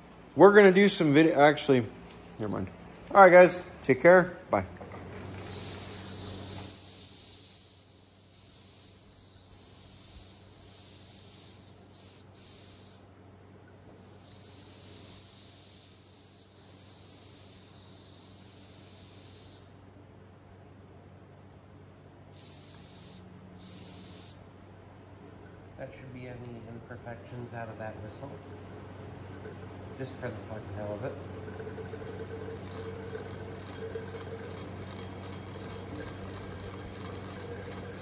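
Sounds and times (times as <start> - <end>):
steam whistle toots: 5.4 - 13.1, 14.1 - 19.9, 22.3 - 24.6.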